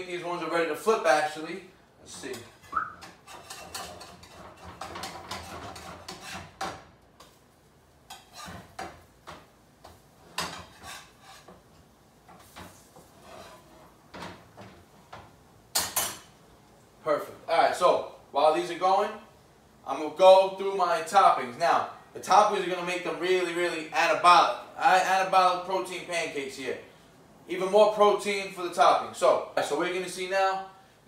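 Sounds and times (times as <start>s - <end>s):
spatula scraping frying pan: 2.1s - 7.4s, 8.0s - 15.2s.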